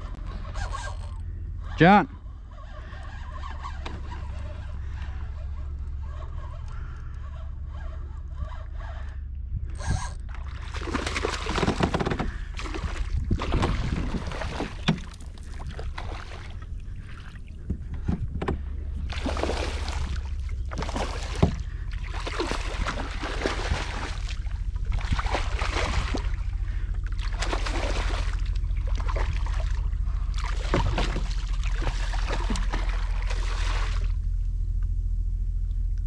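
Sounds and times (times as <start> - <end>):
fish splashing in water: 10.4 - 17.5, 19.0 - 34.2.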